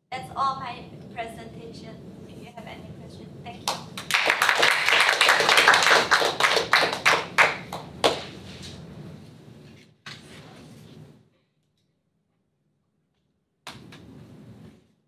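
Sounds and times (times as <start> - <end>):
audience applauding: 3.7 - 8.4.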